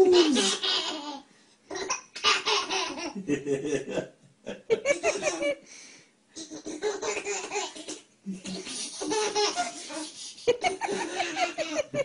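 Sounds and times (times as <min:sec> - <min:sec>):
baby laughing: 0:00.0 - 0:03.3, 0:04.8 - 0:05.6, 0:06.4 - 0:12.0
adult laughing: 0:03.1 - 0:05.6, 0:09.2 - 0:12.0.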